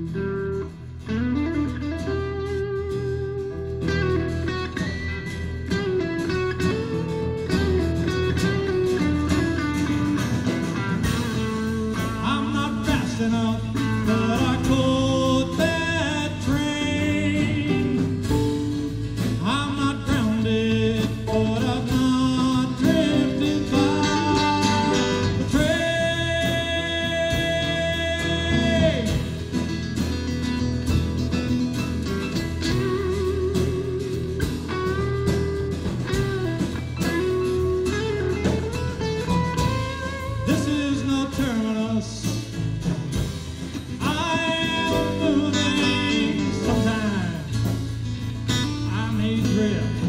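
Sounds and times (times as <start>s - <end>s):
live rock band playing: 0.0s - 50.0s
person singing: 11.3s - 29.5s, 40.2s - 42.6s, 43.6s - 48.0s, 48.6s - 50.0s.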